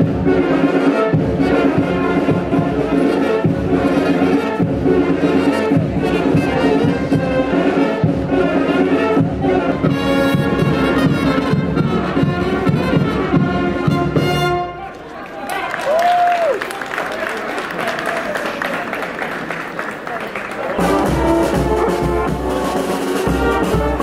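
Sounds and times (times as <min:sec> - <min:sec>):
brass band dance music: 0:00.0 - 0:14.9, 0:20.6 - 0:24.0.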